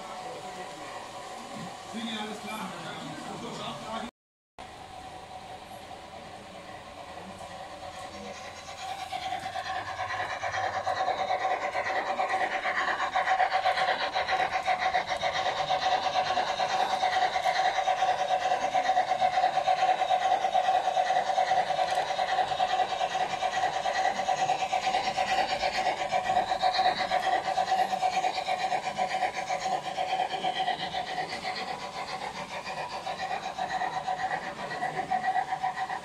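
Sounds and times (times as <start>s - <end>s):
model trains rasping drone: 0.0s - 36.0s.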